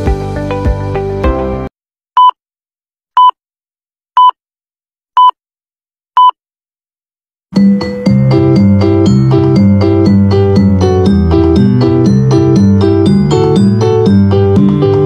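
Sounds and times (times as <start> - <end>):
music: 0.0 - 1.7, 7.6 - 15.0
short electronic beeps: 3.2 - 3.4, 4.2 - 4.4, 5.2 - 5.4, 6.2 - 6.4
dance music: 7.6 - 15.0.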